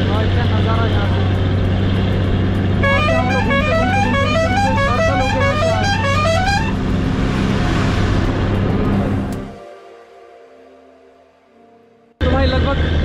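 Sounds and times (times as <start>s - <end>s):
bus engine running: 0.0s - 9.6s
musical vehicle horn tune: 2.8s - 7.0s.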